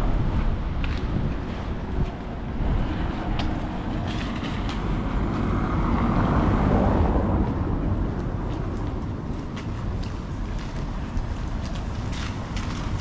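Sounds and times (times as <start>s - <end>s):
wind rumble on microphone: 0.0s - 13.0s
vehicle passing by: 1.4s - 10.6s.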